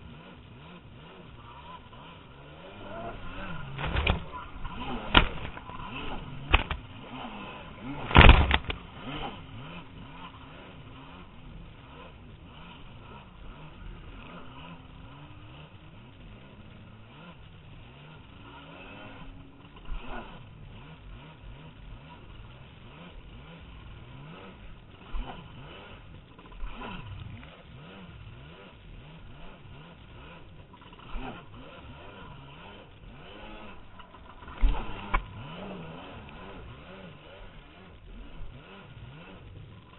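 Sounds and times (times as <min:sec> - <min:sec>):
jet ski engine revving: 0:00.0 - 0:39.9
wind: 0:00.0 - 0:39.9
hull thumping on waves: 0:08.1 - 0:08.8.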